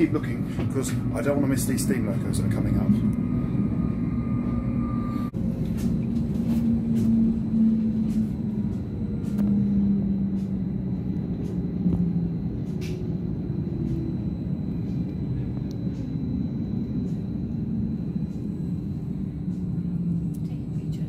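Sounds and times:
train motor hum: 0.0 - 21.0
train wheels rumbling on rail: 5.3 - 21.0.

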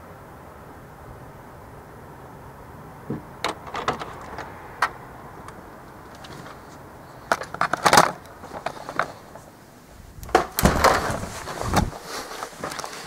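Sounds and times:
camera rubbing and thumps: 10.2 - 13.0.

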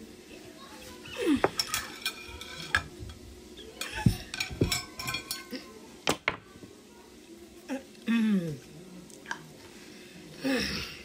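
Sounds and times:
utensils clinking: 1.2 - 6.4
cutlery scraping on a plate: 1.4 - 3.2, 3.8 - 5.6.

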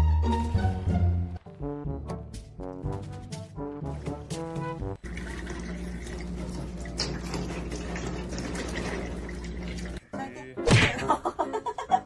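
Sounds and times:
music: 0.0 - 7.6, 9.7 - 12.0
water pouring into a glass: 5.0 - 10.0.

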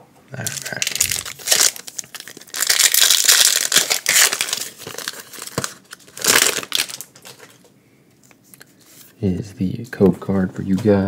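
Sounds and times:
foil pack crinkling: 0.4 - 7.7.

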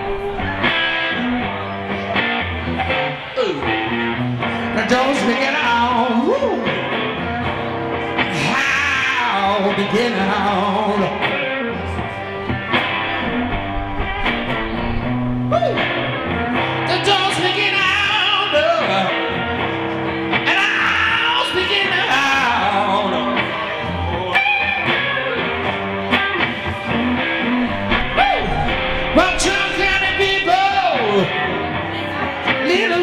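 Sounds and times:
distorted electric guitar: 0.0 - 33.0
man singing: 4.6 - 7.0, 8.3 - 11.9, 16.7 - 19.5, 20.4 - 24.7, 28.1 - 31.8, 32.4 - 33.0.

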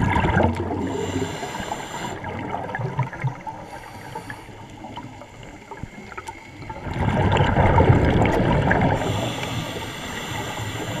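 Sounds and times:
diver's bubbles gurgling: 0.0 - 11.0
underwater hiss: 0.6 - 2.6, 3.4 - 7.5, 8.6 - 11.0.

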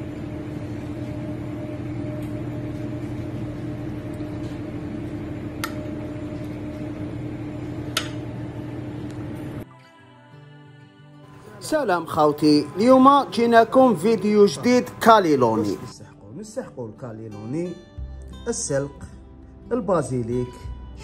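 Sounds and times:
kitchen equipment humming: 0.0 - 9.6, 11.3 - 15.9.

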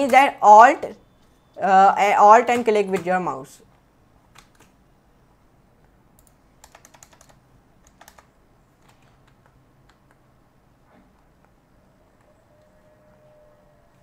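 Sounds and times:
faint keyboard keystrokes: 5.8 - 10.2.

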